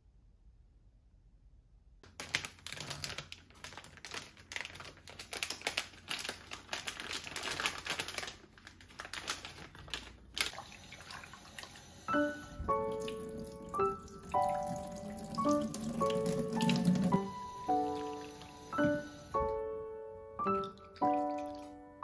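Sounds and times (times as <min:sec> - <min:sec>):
plastic package crinkling: 0:02.0 - 0:10.8, 0:12.6 - 0:17.5
tap water running: 0:10.5 - 0:19.6.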